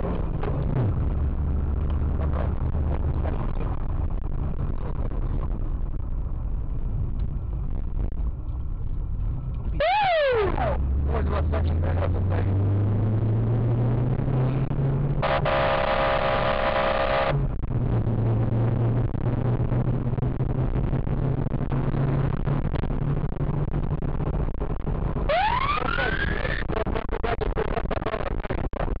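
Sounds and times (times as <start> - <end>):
car engine and road noise: 0.0 - 29.0
steady high tone: 9.8 - 10.8, 15.2 - 17.4.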